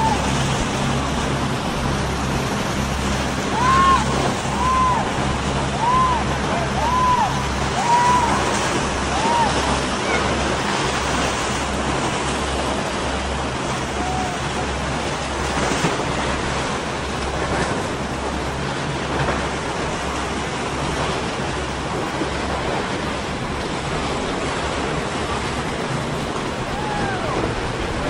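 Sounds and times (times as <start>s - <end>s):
choppy water rushing: 0.0s - 28.0s
low boat engine hum: 0.0s - 28.0s
wind on microphone: 21.8s - 28.0s.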